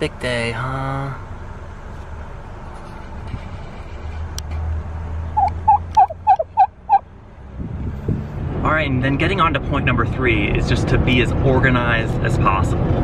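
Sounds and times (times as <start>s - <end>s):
low car road rumble: 0.0s - 13.0s
turkey calling: 5.4s - 7.0s.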